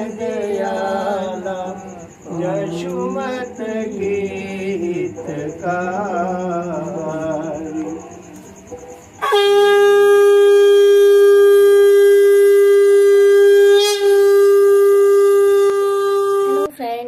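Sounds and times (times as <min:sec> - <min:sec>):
conch shell blown: 0:09.1 - 0:16.7.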